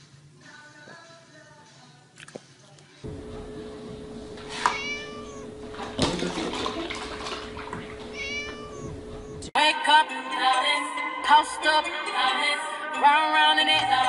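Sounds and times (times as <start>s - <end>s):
music: 0.0s - 3.8s, 9.2s - 14.0s
cat meowing: 4.3s - 5.8s, 7.4s - 9.5s
milk pouring: 4.9s - 8.8s.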